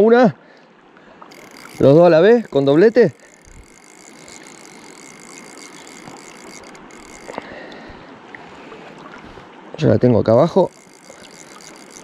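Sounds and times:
fly reel drag ratcheting: 1.3s - 7.9s, 10.3s - 12.0s.

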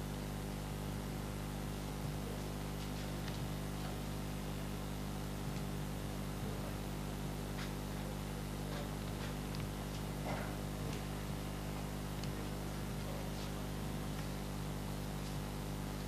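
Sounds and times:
low hum and hiss: 0.0s - 16.0s.

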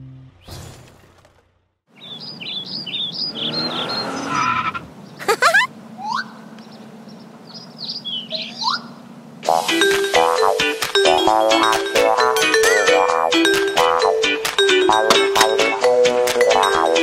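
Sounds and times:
vehicle engine hum: 1.1s - 9.4s
birds chirping: 1.9s - 9.3s.

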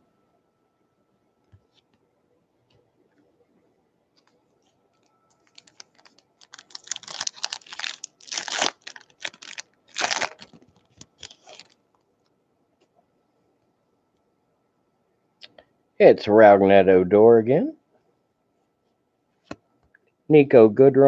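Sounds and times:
plastic wrapper tearing and crinkling: 5.4s - 11.8s.

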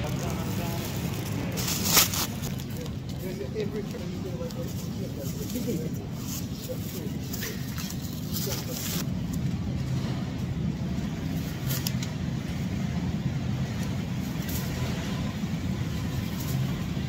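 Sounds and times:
plastic bag crinkling: 0.0s - 4.0s
supermarket background hum: 0.0s - 17.0s.

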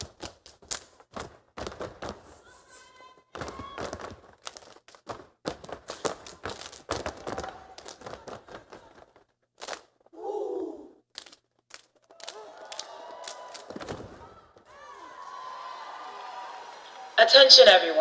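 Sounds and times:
stomps and claps on wooden stage: 0.0s - 2.5s, 3.2s - 10.0s, 11.2s - 17.2s
short voice-like cry: 10.2s - 11.0s.

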